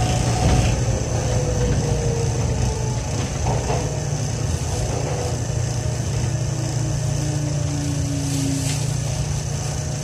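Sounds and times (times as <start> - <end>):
train car low rumble: 0.0 - 10.0.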